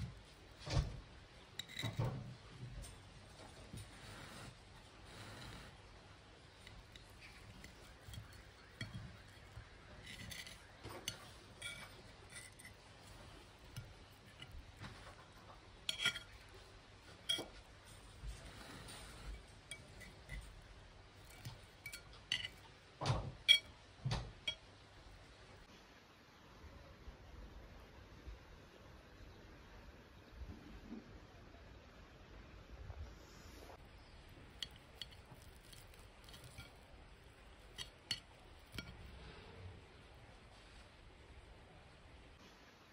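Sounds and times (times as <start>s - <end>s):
cutlery clinking on a plate: 1.6s - 2.2s, 6.9s - 14.6s, 15.9s - 16.5s, 21.2s - 22.6s, 23.4s - 24.6s, 34.6s - 36.8s, 37.7s - 39.0s.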